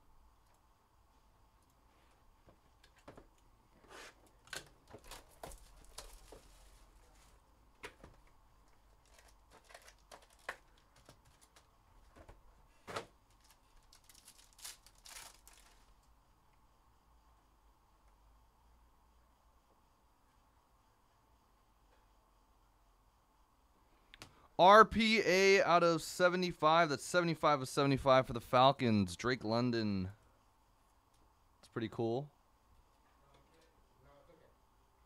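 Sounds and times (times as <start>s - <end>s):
foil wrapper crinkling and tearing: 8.9s - 11.6s, 13.3s - 16.0s.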